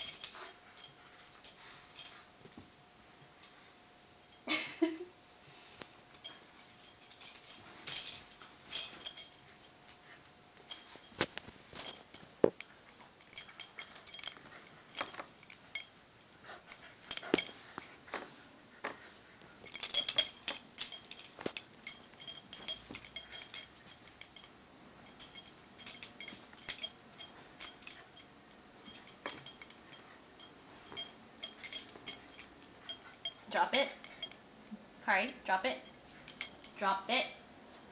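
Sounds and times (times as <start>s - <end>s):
metal tags jangling: 0.0s - 4.9s, 6.1s - 18.2s, 19.0s - 37.9s.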